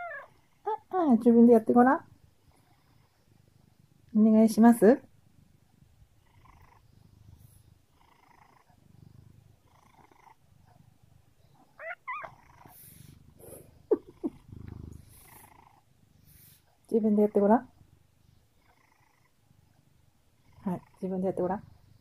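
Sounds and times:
cat purring: 0:00.0 - 0:22.0
cat chirps: 0:11.7 - 0:12.5.

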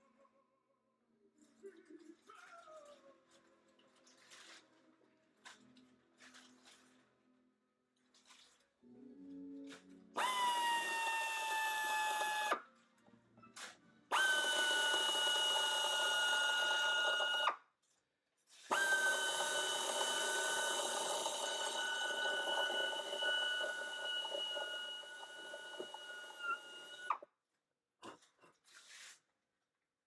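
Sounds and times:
pneumatic air drill whining: 0:10.2 - 0:12.6, 0:14.1 - 0:17.6, 0:18.7 - 0:27.2.

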